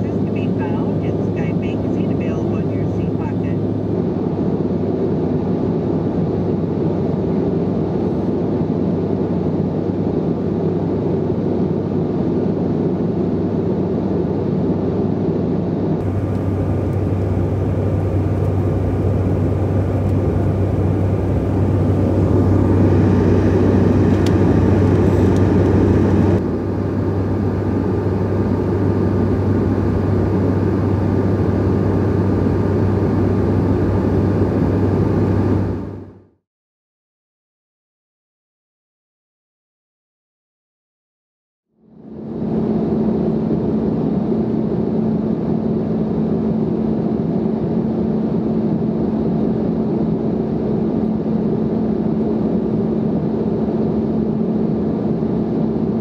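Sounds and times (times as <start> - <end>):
jet engine drone: 0.0 - 36.3, 41.8 - 56.0
air rushing over fuselage: 16.0 - 36.2
low hum: 16.0 - 36.3.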